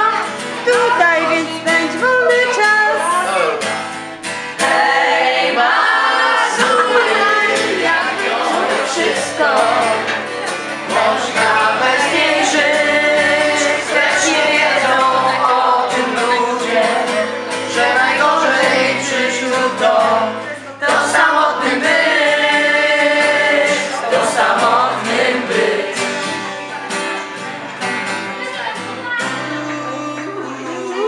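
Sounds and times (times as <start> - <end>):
acoustic guitar: 0.0 - 31.0
group of people singing: 4.4 - 26.7, 29.4 - 31.0.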